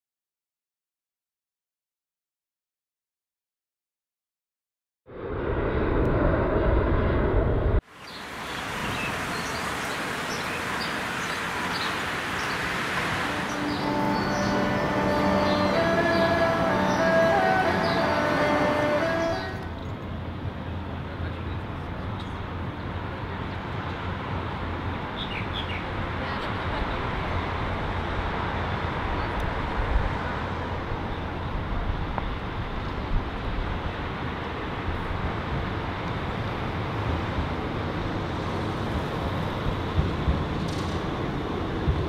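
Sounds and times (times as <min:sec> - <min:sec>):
city street traffic: 0:07.8 - 0:42.0
tram approaching: 0:09.2 - 0:42.0
bird chirping: 0:13.4 - 0:17.1.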